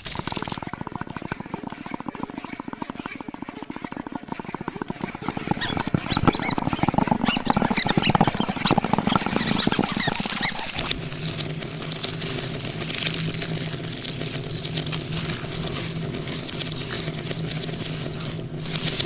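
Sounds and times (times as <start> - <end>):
rapid clicking: 0.0 - 3.4, 4.4 - 19.0
low hum with faint hiss: 9.3 - 19.0.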